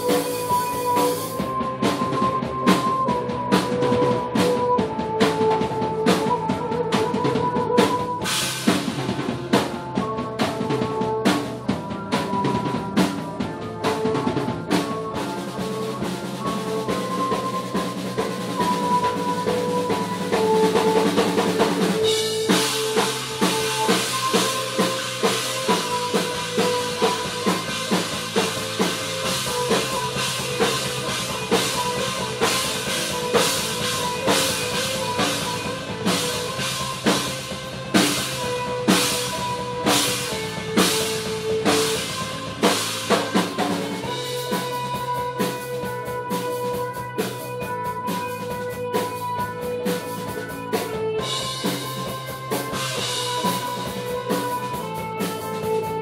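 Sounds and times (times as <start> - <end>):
drum kit beat: 0.0 - 56.0
punk band playing live: 0.0 - 56.0.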